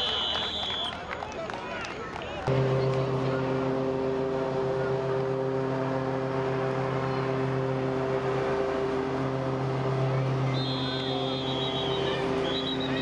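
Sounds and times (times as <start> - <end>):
machine-like hum: 2.5 - 13.0.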